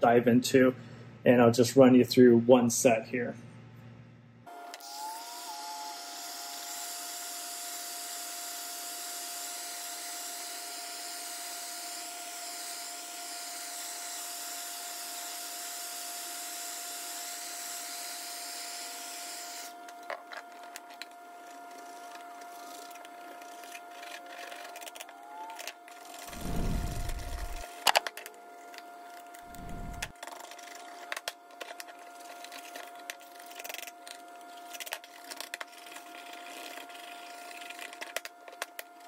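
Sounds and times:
heat gun blowing hot air: 26.3s - 27.6s, 29.5s - 30.1s.

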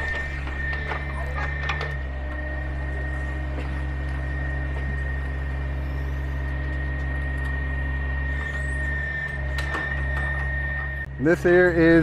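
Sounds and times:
excavator diesel engine hum: 0.0s - 12.0s
thin high whine: 2.5s - 12.0s.

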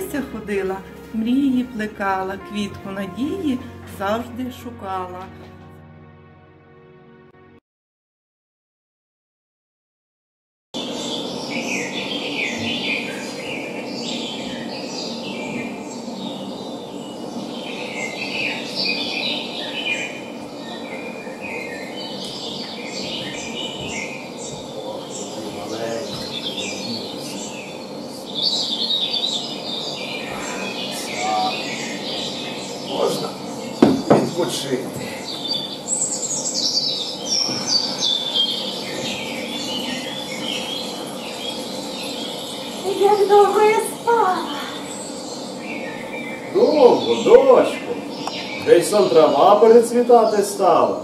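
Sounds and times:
steady low hiss: 0.0s - 5.2s, 10.8s - 51.0s
birds chirping and twittering: 10.8s - 51.0s.

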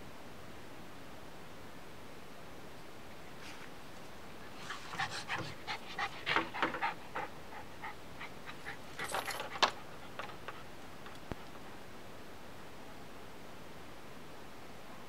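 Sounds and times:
dog panting: 4.5s - 11.5s.

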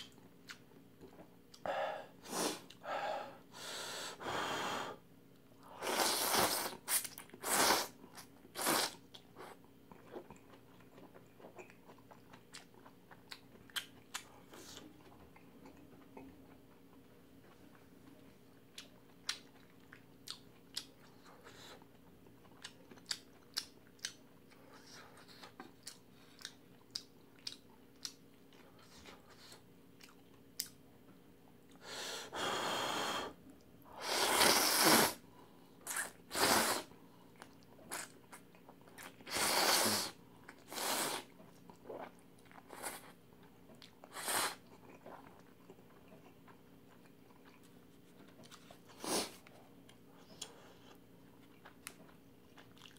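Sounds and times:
chewing with wet mouth clicks: 0.0s - 1.6s, 9.1s - 30.8s, 43.4s - 48.8s, 49.8s - 52.9s
loud noodle slurps: 5.8s - 8.0s, 8.6s - 9.0s, 34.0s - 35.2s, 35.9s - 36.9s, 39.3s - 41.3s, 44.1s - 44.6s.

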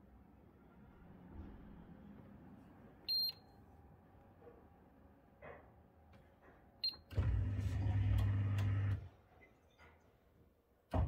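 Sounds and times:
dishwasher motor hum: 7.1s - 9.1s.

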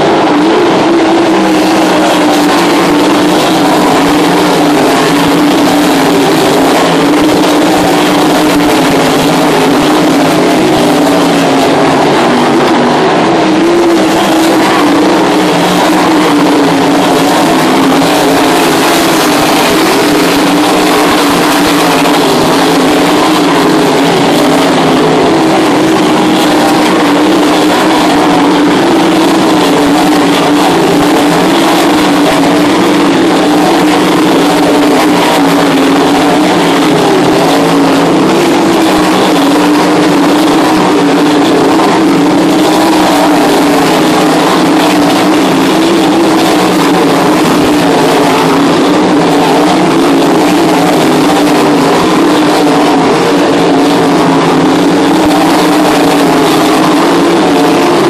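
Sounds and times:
race car engines droning: 0.0s - 58.0s.

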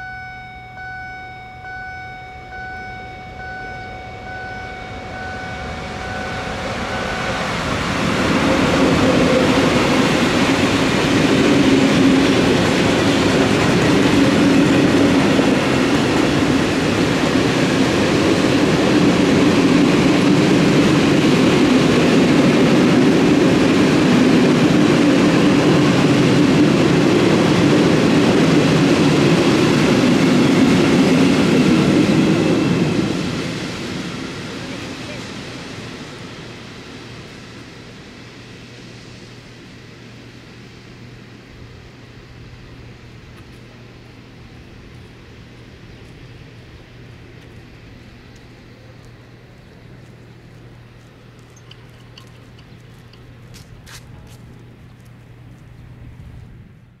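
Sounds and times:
level crossing warning bell: 0.0s - 8.0s
train wheels on track: 0.0s - 57.0s.

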